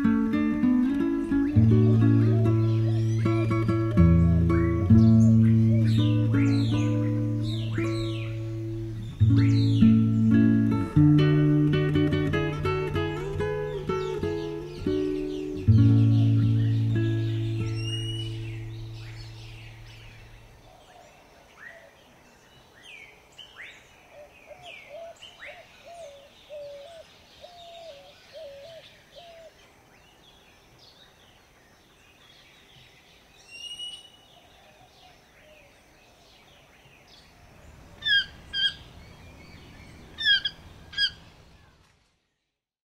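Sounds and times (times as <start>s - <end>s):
music: 0.0s - 19.6s
low warbling bird call: 0.8s - 11.0s, 11.7s - 20.9s, 37.9s - 41.8s
birds chirping and whistling: 1.0s - 10.9s, 12.0s - 20.6s, 33.4s - 34.3s, 38.0s - 41.3s
loud short bird calls: 38.0s - 41.8s.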